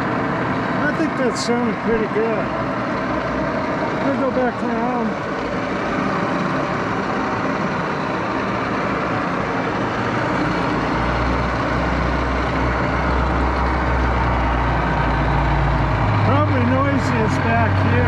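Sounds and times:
lathe mechanical whir: 0.0s - 18.0s.

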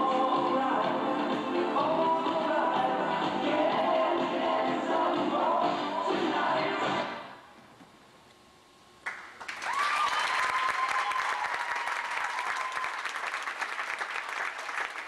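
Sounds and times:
audience clapping and cheering: 9.0s - 15.0s
long high held cheer: 9.5s - 13.7s.

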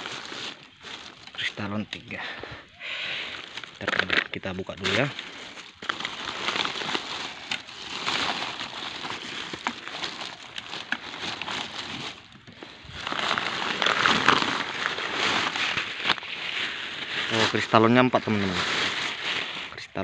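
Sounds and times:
plastic bag rustling: 0.0s - 20.0s.

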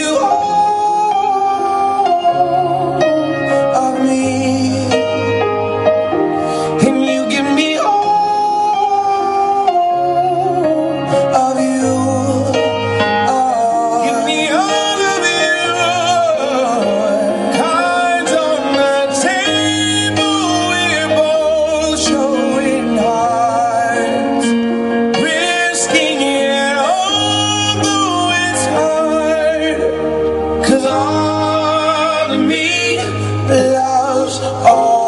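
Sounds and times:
instrumental backing with bass: 0.0s - 35.0s
person singing with vibrato: 0.0s - 35.0s.

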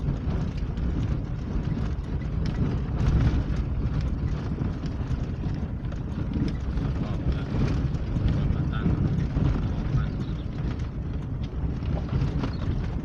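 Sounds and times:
engine and tyres rumbling: 0.0s - 13.0s
stones knocking and rattling: 0.0s - 13.0s.

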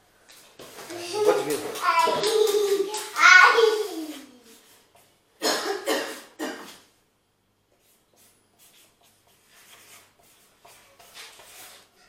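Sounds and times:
pen scratching on paper: 7.8s - 11.9s.

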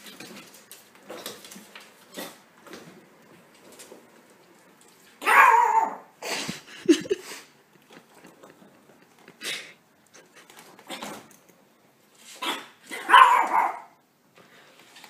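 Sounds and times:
puppy barking: 5.2s - 6.1s, 12.4s - 14.0s.

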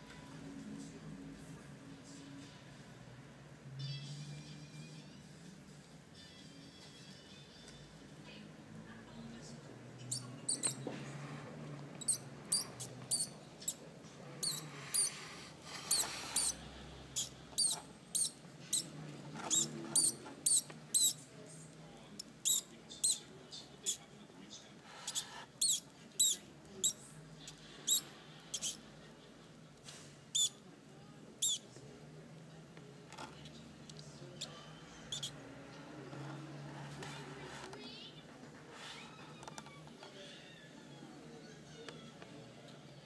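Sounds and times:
mouse squeaking: 10.0s - 10.9s, 12.0s - 13.8s, 14.4s - 21.2s, 22.2s - 24.0s, 25.0s - 28.8s, 30.3s - 30.6s, 31.4s - 31.6s, 34.4s - 35.4s.

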